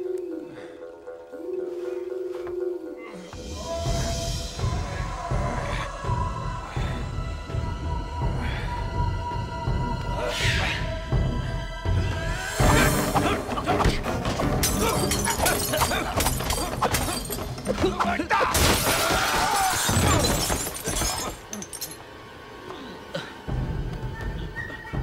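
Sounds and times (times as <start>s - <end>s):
dramatic music: 0.0s - 25.0s
wood breaking: 14.3s - 21.5s
glass shattering: 14.6s - 17.9s, 18.5s - 22.0s.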